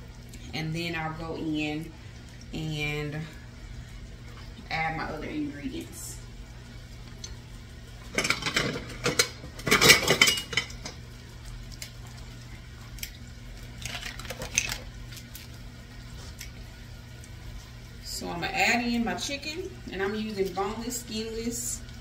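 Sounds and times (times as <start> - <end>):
low steady hum: 0.0 - 22.0
kitchenware clattering on countertop: 8.2 - 11.0.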